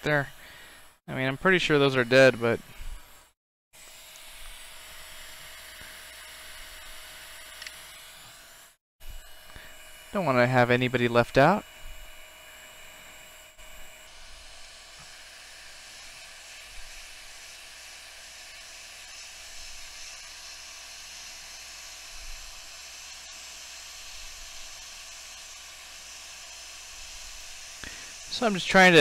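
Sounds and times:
hot air station hissing: 9.2 - 29.0.

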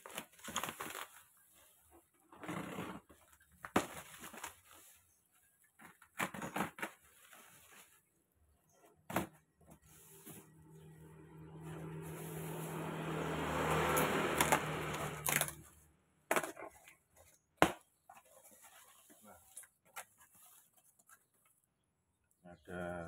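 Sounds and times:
cardboard box torn open: 0.0 - 1.3, 13.9 - 15.7
bubble wrap crackling: 0.0 - 1.8.

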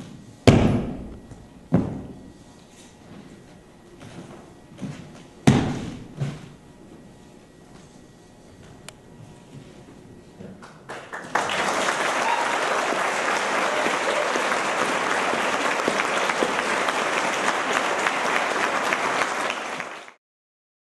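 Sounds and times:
group applause: 10.6 - 20.2.

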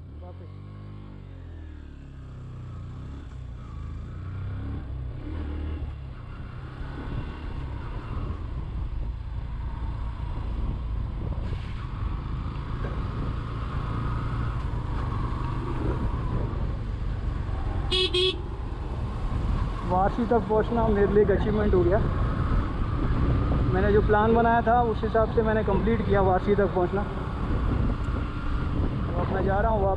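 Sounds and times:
motorcycle engine accelerating: 0.0 - 8.8, 9.4 - 19.8
wind and road noise: 0.0 - 29.9.

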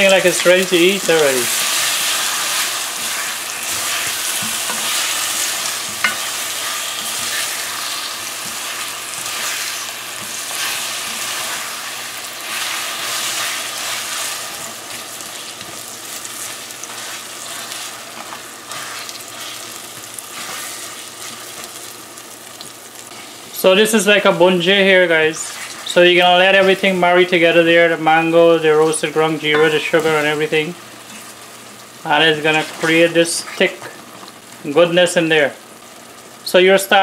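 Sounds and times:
spoon stirring and scraping pan: 0.0 - 21.9, 29.4 - 30.4, 32.5 - 34.4
food sizzling in hot oil: 0.0 - 37.0.

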